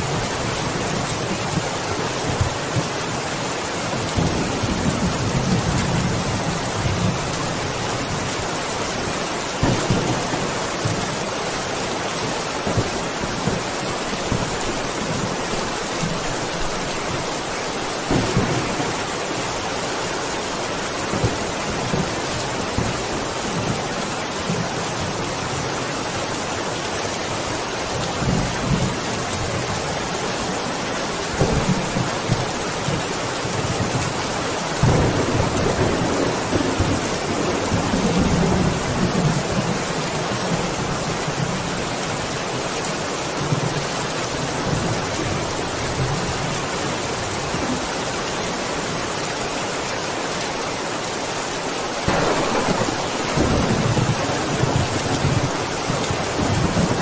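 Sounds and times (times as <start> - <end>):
heavy rain: 0.0 - 57.0
thunder rumbling: 9.6 - 11.6, 12.5 - 24.8, 34.8 - 39.8, 52.0 - 57.0.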